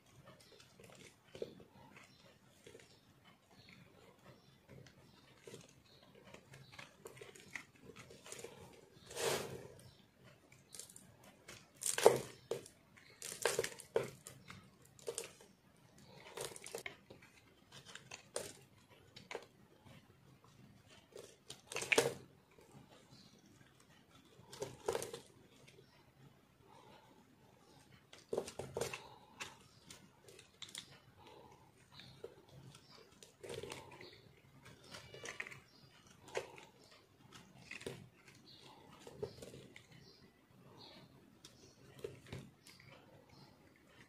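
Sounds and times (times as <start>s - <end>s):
soap crunching and scraping: 3.6s - 10.0s, 10.6s - 19.6s, 21.0s - 23.1s, 27.6s - 43.4s.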